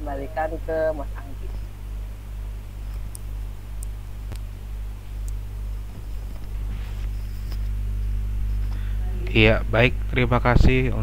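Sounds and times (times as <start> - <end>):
electrical hum: 0.0 - 11.0
faint clicks: 2.9 - 4.5.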